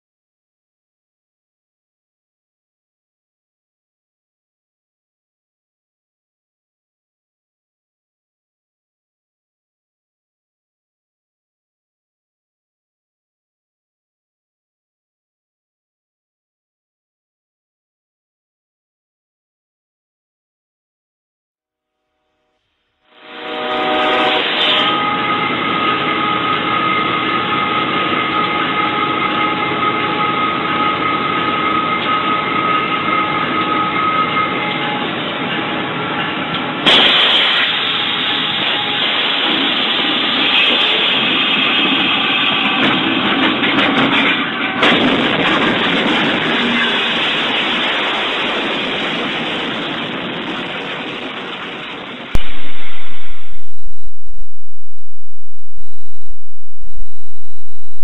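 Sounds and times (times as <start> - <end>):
locomotive rumble: 38.3 - 53.2
loud rushing din: 52.3 - 54.0
noisy rumble: 52.3 - 58.0
steady high whine: 52.4 - 58.0.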